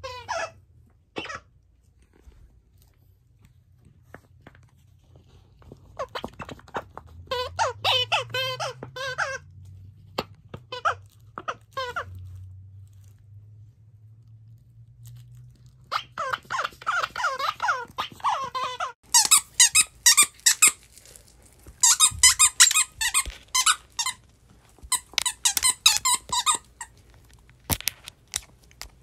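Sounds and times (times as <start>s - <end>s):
squeaky toy squeaking: 0.0s - 0.6s, 6.0s - 9.5s, 10.2s - 12.4s, 15.9s - 21.2s, 21.8s - 29.0s.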